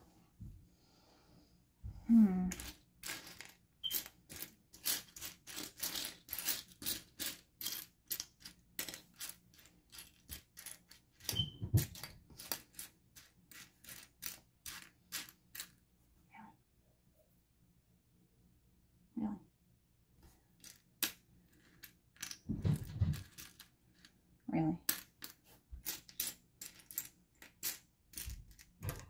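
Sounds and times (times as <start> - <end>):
plastic bricks clicking and rattling: 2.5 - 15.7, 24.9 - 29.0.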